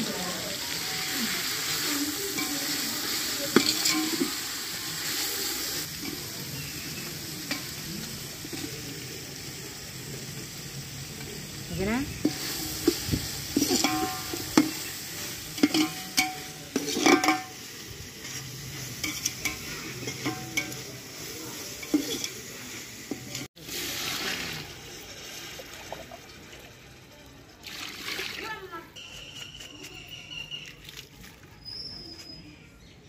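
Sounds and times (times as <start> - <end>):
water hissing in hot pot: 0.0 - 28.8
frying sizzle: 0.0 - 29.2
ladle scraping metal pot: 3.5 - 4.5, 12.2 - 20.9, 21.7 - 26.2.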